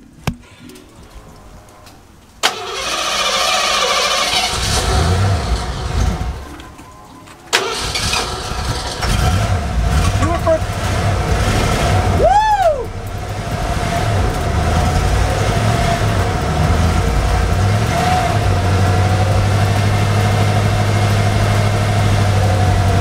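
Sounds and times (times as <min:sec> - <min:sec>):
pickup engine rumbling: 0:00.0 - 0:23.0
person whooping: 0:12.1 - 0:13.0.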